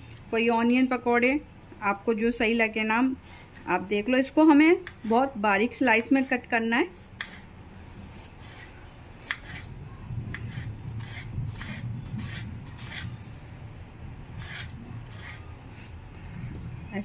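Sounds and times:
low steady rumble: 5.2s - 17.0s
knife slicing onion on board: 6.0s - 13.2s, 14.3s - 15.5s.

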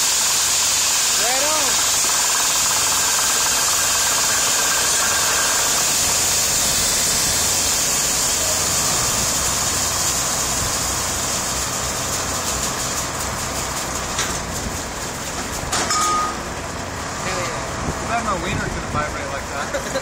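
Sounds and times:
low drone of pumping engines: 0.0s - 15.7s
loud steady fluid hiss: 0.0s - 20.0s.

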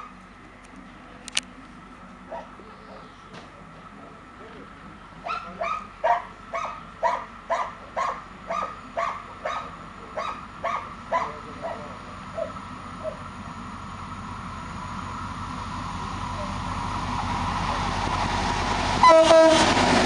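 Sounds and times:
approaching freight train: 0.0s - 20.0s
dog barking: 2.3s - 2.5s, 5.2s - 13.2s.

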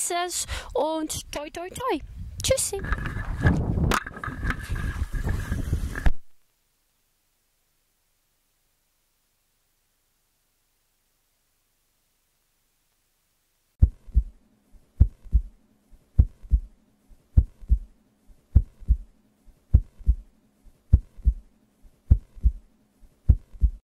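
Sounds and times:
deep heartbeat-like thumps: 13.8s - 14.4s, 15.0s - 15.6s, 16.2s - 16.8s, 17.4s - 17.9s, 18.5s - 19.1s, 19.7s - 20.3s, 20.9s - 21.5s, 22.1s - 22.6s, 23.3s - 23.8s.

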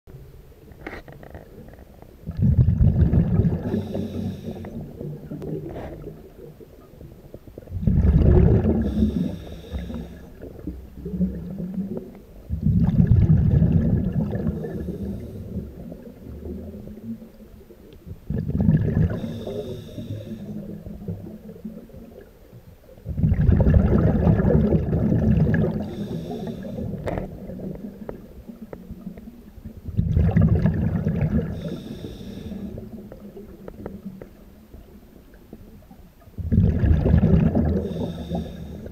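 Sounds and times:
bubbling underwater exhalations: 2.2s - 6.6s, 7.6s - 17.2s, 18.2s - 22.2s, 23.0s - 29.1s, 29.9s - 34.2s, 36.4s - 38.9s
regulator hiss: 3.7s - 5.1s, 8.9s - 10.5s, 19.2s - 20.7s, 25.8s - 27.0s, 31.6s - 33.0s, 37.8s - 38.9s.

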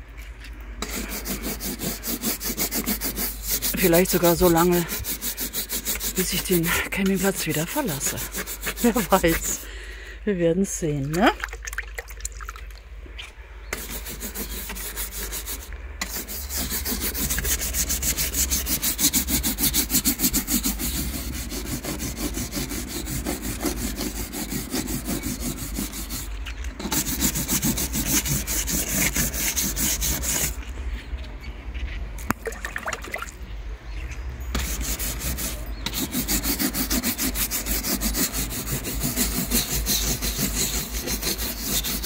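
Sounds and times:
hand brush scrubbing a wall: 0.8s - 9.8s, 13.7s - 30.6s, 34.5s - 42.0s.

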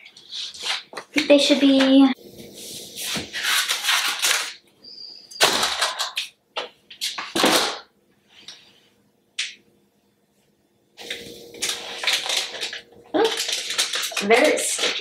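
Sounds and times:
floor tiles slapping and sliding: 0.0s - 4.6s.

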